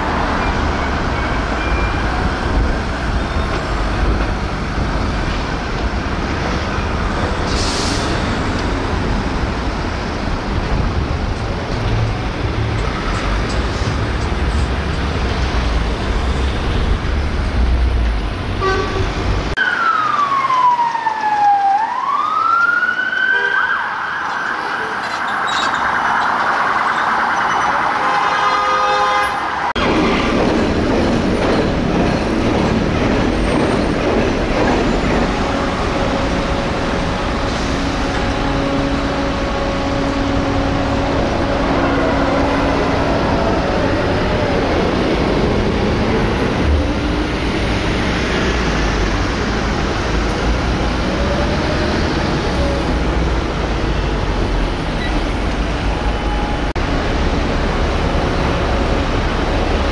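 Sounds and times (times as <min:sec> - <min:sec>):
road traffic noise: 0:00.0 - 0:59.9
police siren: 0:19.6 - 0:28.3.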